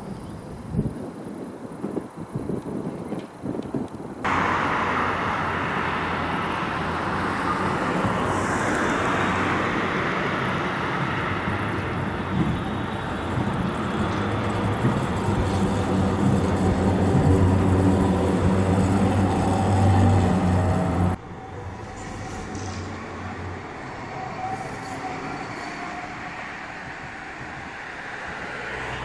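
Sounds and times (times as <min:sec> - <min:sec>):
tram motor hum and rolling: 0:00.1 - 0:29.0
outdoor rumble: 0:04.2 - 0:24.0.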